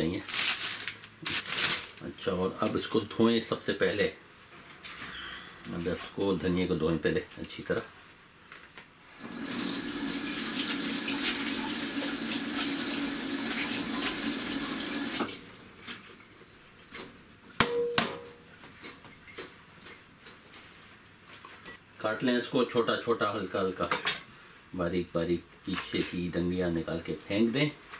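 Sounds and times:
tap water running into sink: 9.3s - 15.4s.

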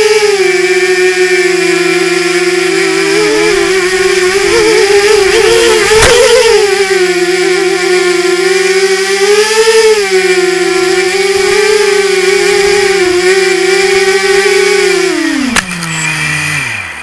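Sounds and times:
quadcopter motors whining: 0.0s - 17.0s
click: 15.5s - 16.0s.

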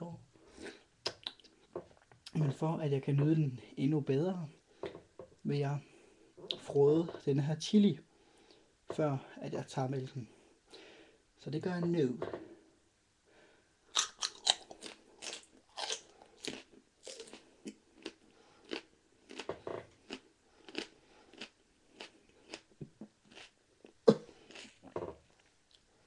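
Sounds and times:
chili pepper crunching and chewing: 13.9s - 25.9s.

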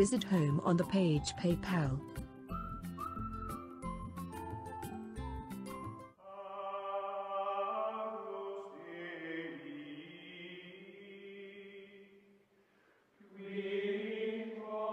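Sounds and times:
slow chant of held vocal notes: 6.2s - 12.4s, 13.2s - 14.9s.

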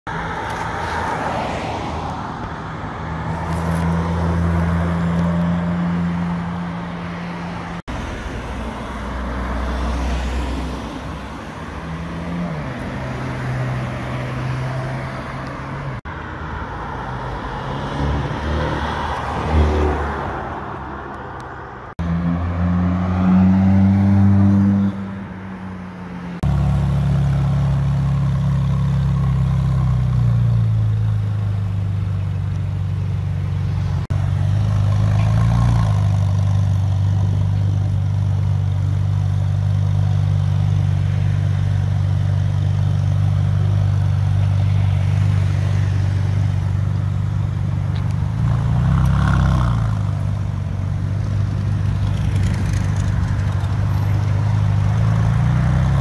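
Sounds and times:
cars accelerating past: 16.9s - 21.0s, 21.8s - 31.1s, 47.9s - 56.0s.

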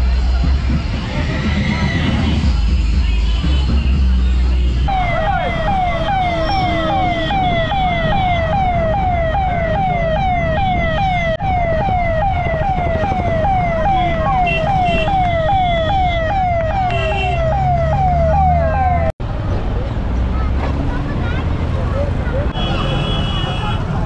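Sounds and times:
road traffic rumble: 0.0s - 24.0s
electronic siren yelping: 4.9s - 19.1s.

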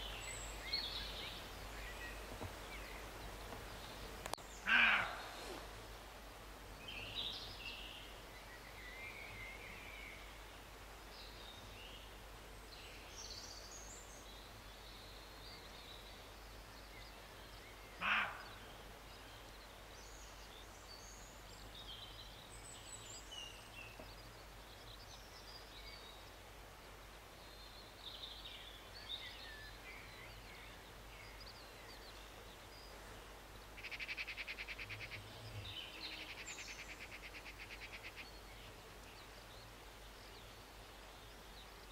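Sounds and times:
faint birdsong: 0.0s - 41.9s
deer barking: 4.7s - 5.4s, 18.0s - 18.5s.

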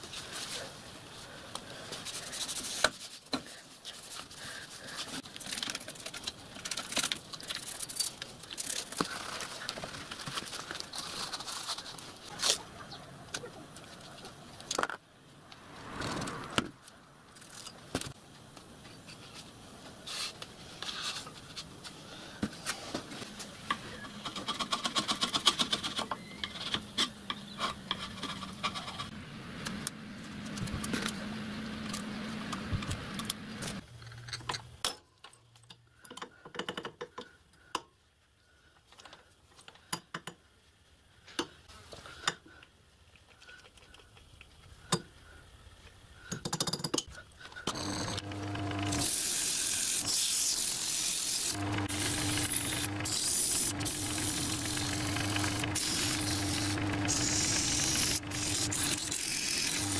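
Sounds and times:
paper and tape rustling: 1.7s - 12.6s
small metal parts clinking: 5.4s - 9.1s
tools tapping and clicking: 34.1s - 37.9s, 39.7s - 40.4s, 46.3s - 49.2s
rhythmic mechanical sound: 47.7s - 59.9s
steady low hum: 51.5s - 59.9s.

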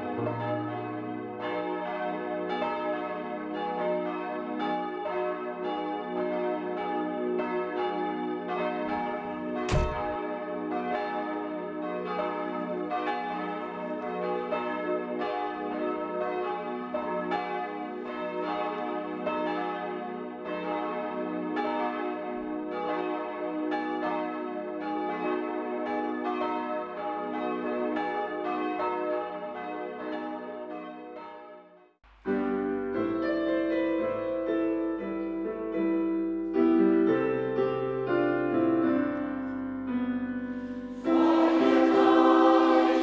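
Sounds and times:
church bells pealing: 0.0s - 31.6s, 40.5s - 43.0s.

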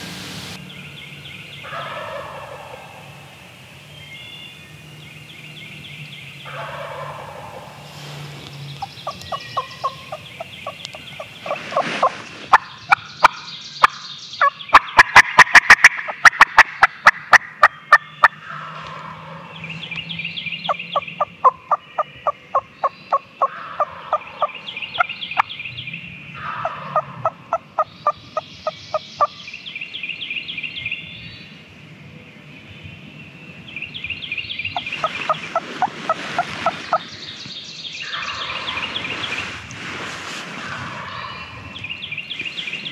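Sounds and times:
turkey gobbling: 1.6s - 3.0s, 6.5s - 7.8s, 8.8s - 19.5s, 23.4s - 25.1s, 26.4s - 28.2s, 40.7s - 41.6s.

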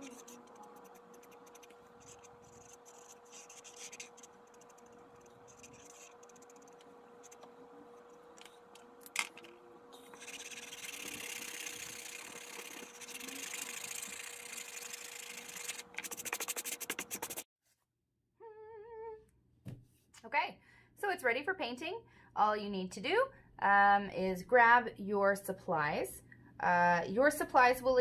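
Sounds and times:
marker scratching on canvas: 0.0s - 8.2s, 10.0s - 17.5s
faint steady hum: 0.0s - 16.2s.

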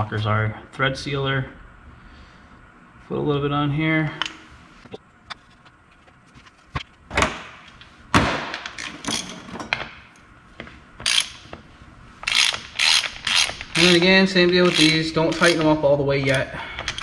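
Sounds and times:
metal bolts and tools clicking: 8.6s - 9.8s, 11.0s - 11.4s, 12.2s - 17.0s
ratchet wrench ratcheting: 11.0s - 11.4s, 12.2s - 17.0s.

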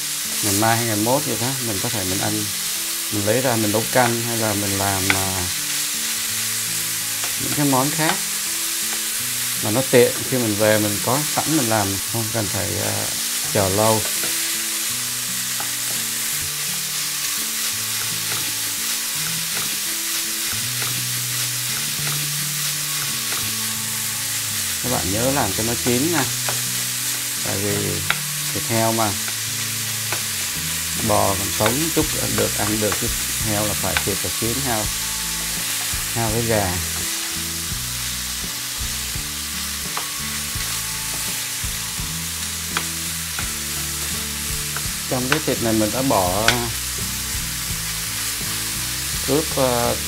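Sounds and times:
meat sizzling in a frying pan: 0.0s - 50.0s
utensils scraping a pan: 12.4s - 24.2s, 24.8s - 37.4s.

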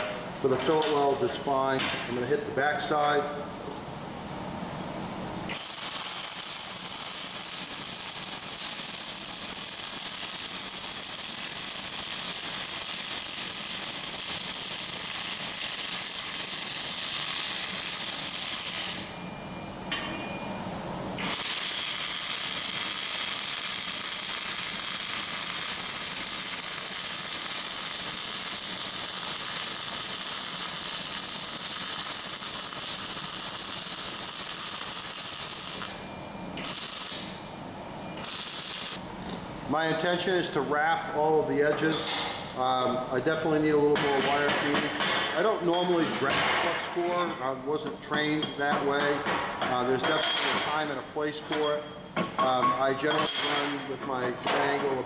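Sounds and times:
welding arc crackle: 5.5s - 19.2s, 21.2s - 36.0s, 36.6s - 37.4s, 38.2s - 39.0s.

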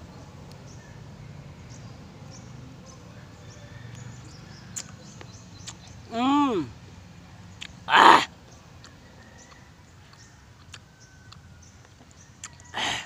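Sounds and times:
breathy mouth sound: 12.8s - 13.0s.

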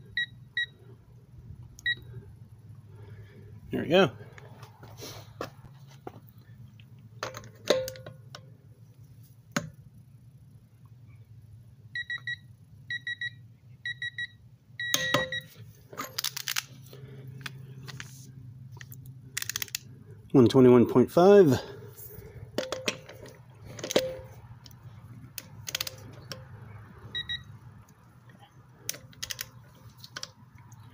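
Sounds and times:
metallic clicks of wrench and socket: 19.4s - 19.8s.

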